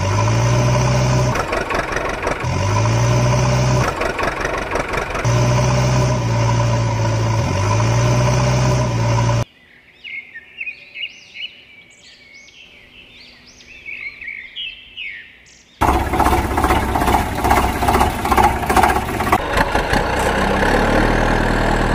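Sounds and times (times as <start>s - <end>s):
vehicle engine humming: 0.0s - 9.4s, 15.8s - 21.9s
birds chirping: 6.4s - 19.4s.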